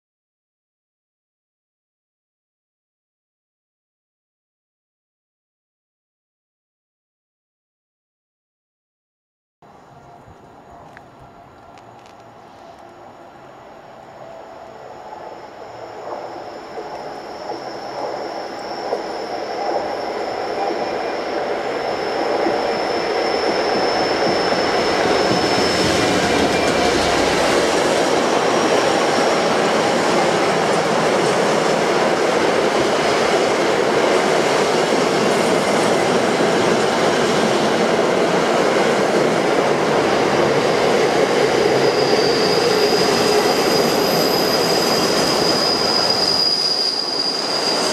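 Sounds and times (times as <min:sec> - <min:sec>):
diesel locomotive passing: 0:09.7 - 0:47.9
high wheel squeal: 0:14.2 - 0:37.9, 0:39.5 - 0:47.9.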